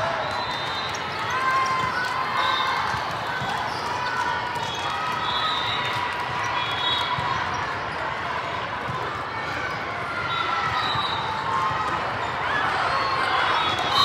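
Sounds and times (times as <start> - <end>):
sneaker squeaks: 0.2 - 8.1.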